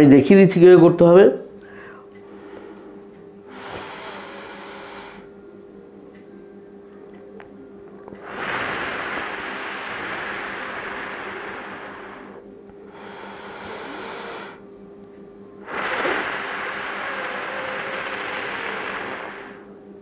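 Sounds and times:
man exhaling through pursed lips: 0:01.6 - 0:05.3, 0:08.2 - 0:14.6, 0:15.6 - 0:19.7
man breathing in: 0:01.6 - 0:05.4, 0:08.2 - 0:14.6, 0:15.6 - 0:19.7.

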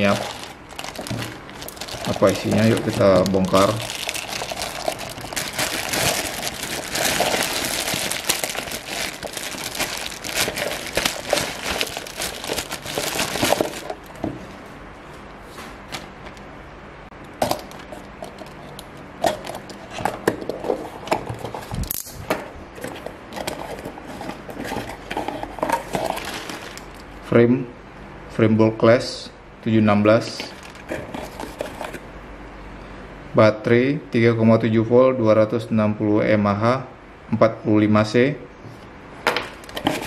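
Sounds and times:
plastic bag crinkling: 0:00.0 - 0:14.2, 0:25.7 - 0:27.0, 0:30.4 - 0:32.0, 0:39.6 - 0:40.0.

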